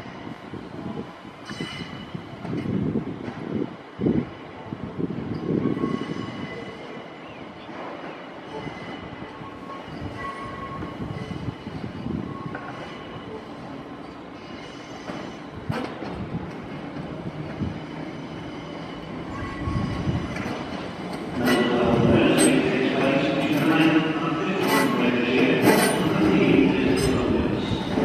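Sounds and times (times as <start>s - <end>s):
train wheels squealing: 1.4s - 2.2s, 5.3s - 16.0s, 17.3s - 22.6s
train running rumble: 13.6s - 28.0s.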